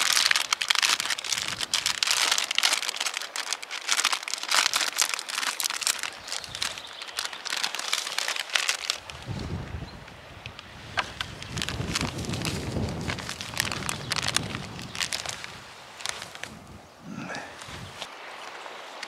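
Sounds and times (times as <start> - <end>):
plastic packet crinkling: 0.0 - 9.3, 11.0 - 16.6.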